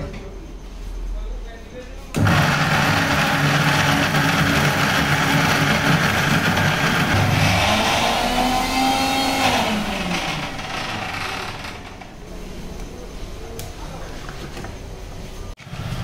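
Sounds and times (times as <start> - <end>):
mixer grinder motor whirring: 2.2 - 12.1.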